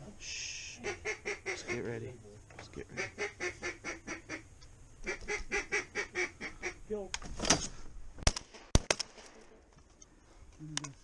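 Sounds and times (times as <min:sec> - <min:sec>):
duck call quacking: 0:00.8 - 0:01.8, 0:03.0 - 0:06.8
shotgun shots: 0:08.2 - 0:09.5.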